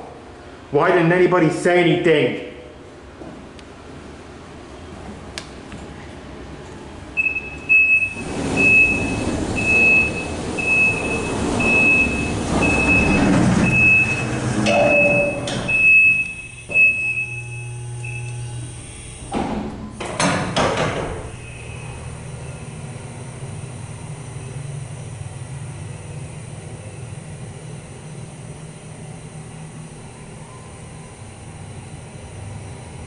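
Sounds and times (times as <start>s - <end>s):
elevator doors rattling: 7.2s - 17.0s
elevator warning beeper: 7.2s - 19.3s, 21.2s - 33.0s.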